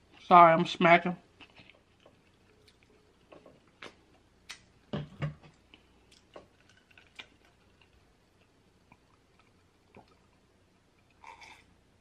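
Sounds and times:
person chewing food: 1.4s - 4.7s, 5.5s - 10.4s, 11.0s - 11.7s.

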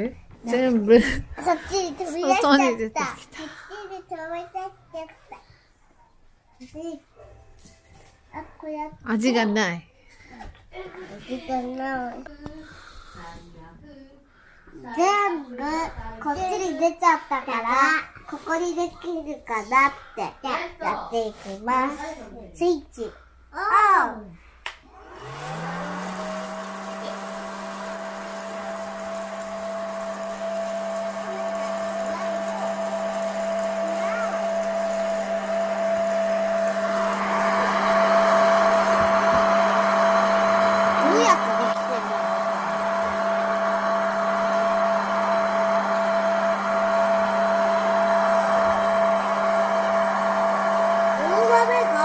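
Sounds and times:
fan motor whining and humming: 24.9s - 52.0s.

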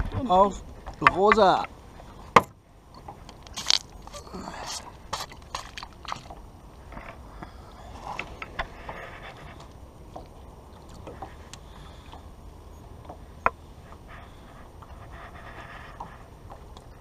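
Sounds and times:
water lapping against boat: 3.0s - 6.6s, 7.4s - 17.0s.

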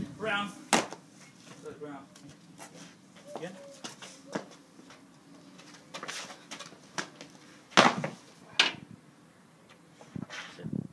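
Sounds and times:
scuffling: 0.7s - 8.3s
body thudding onto paving stones: 5.9s - 8.2s.

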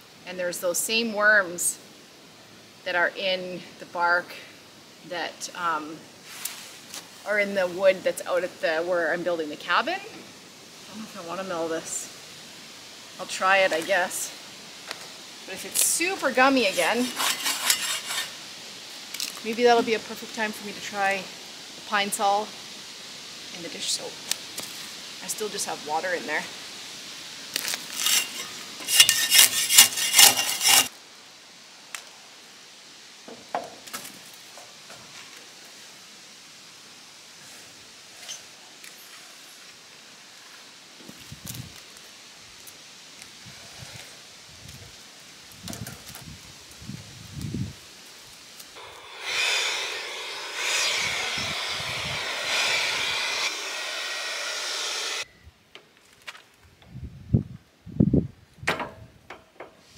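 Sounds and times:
spade scraping bark off log: 16.4s - 18.4s, 27.6s - 30.9s, 48.8s - 55.2s.

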